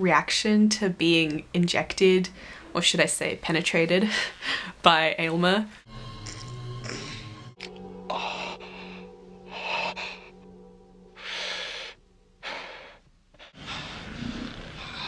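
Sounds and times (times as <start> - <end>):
low music drone: 5.8 - 15.0
man gasping and moaning: 8.0 - 10.5.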